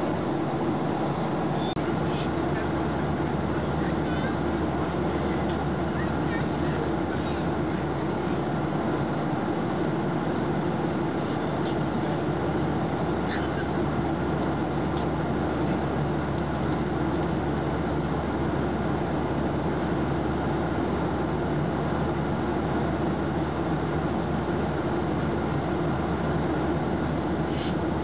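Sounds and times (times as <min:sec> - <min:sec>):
airliner engines and airflow rush: 0:00.0 - 0:28.0
low steady hum: 0:00.0 - 0:28.0.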